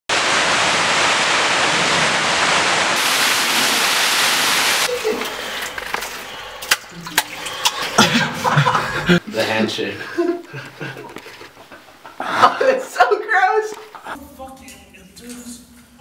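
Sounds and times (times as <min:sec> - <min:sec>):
water rushing in a cave: 0:00.1 - 0:08.8.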